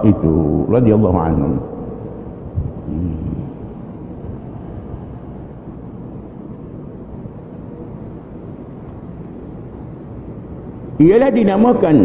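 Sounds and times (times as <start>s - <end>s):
low rumble with faint hiss: 0.0s - 12.0s.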